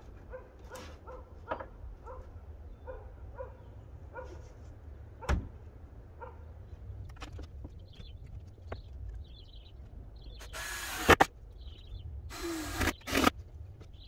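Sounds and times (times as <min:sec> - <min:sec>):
cordless drill driving screws: 0:10.4 - 0:11.3, 0:12.3 - 0:13.3.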